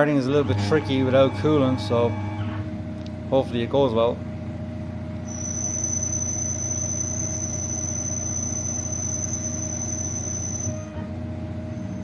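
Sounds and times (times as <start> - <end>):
spindle hum: 0.3 - 2.6, 5.2 - 12.0
lathe tool squealing: 5.2 - 12.0.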